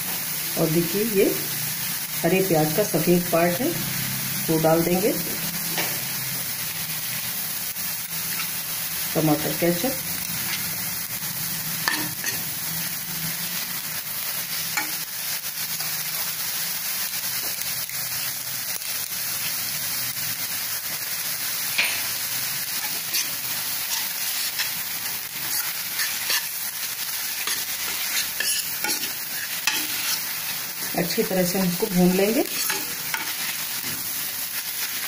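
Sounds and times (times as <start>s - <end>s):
vegetables sizzling in a wok: 0.0s - 35.0s
metal spoon scraping a wok: 11.8s - 12.4s, 22.6s - 30.6s, 32.2s - 33.6s.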